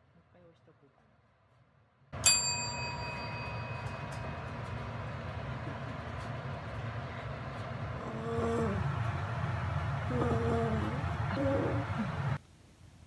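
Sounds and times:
desk service bell ding: 2.2s - 5.3s.

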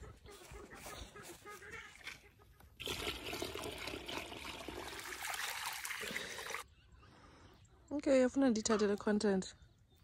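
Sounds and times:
chickens clucking: 0.0s - 2.8s.

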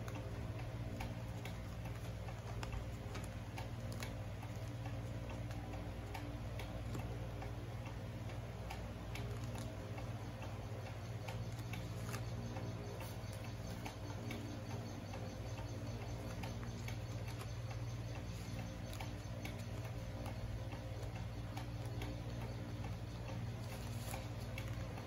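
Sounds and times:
steady low hum: 0.0s - 25.0s
paper being folded and creased: 9.2s - 9.7s, 23.6s - 24.8s.

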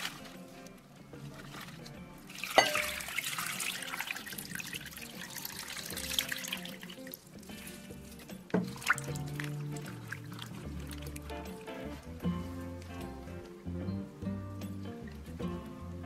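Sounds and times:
soft background music: 0.0s - 16.0s
water pouring into glass bowl: 2.3s - 12.0s.

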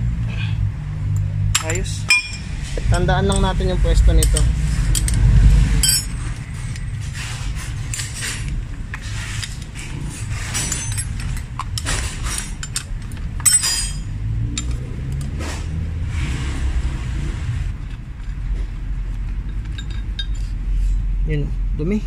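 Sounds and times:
low steady rumble: 0.0s - 22.0s
metal tools clinking and scraping: 1.6s - 15.6s, 17.8s - 21.0s.

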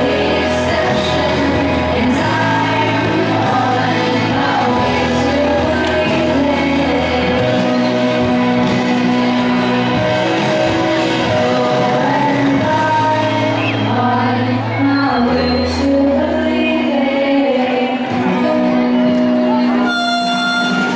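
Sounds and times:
women singing pop song: 0.0s - 8.8s, 10.4s - 18.8s
instrumental backing track: 18.1s - 20.9s.

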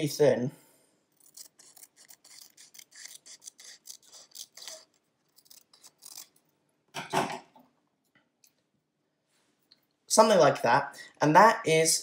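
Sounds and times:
scissors snipping paper: 1.2s - 6.4s.

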